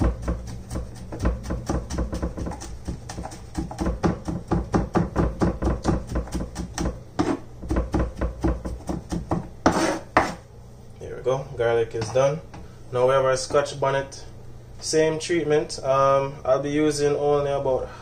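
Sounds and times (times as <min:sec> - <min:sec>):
knife chopping on wooden board: 0:00.0 - 0:10.4.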